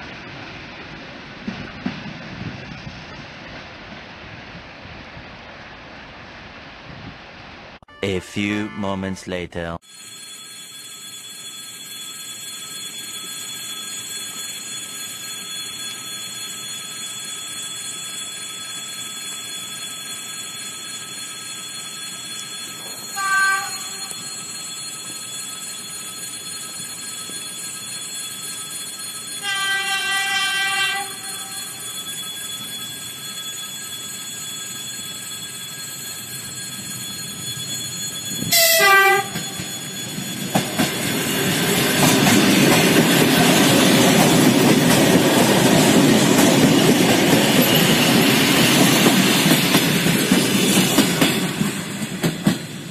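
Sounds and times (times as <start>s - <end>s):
train running noise: 0.0s - 7.7s, 12.7s - 52.9s
train horn blasts: 38.5s - 39.4s.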